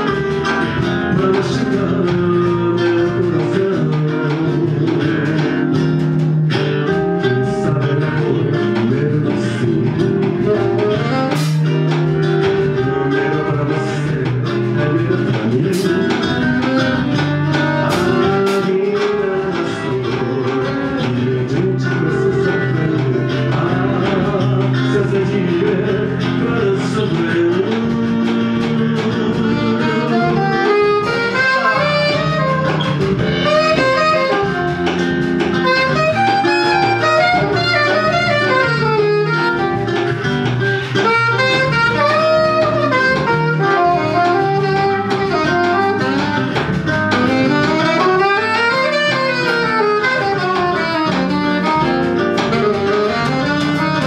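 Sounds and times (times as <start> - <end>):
jazz blues band playing: 0.0 - 54.0
wavering melody line: 29.9 - 40.1.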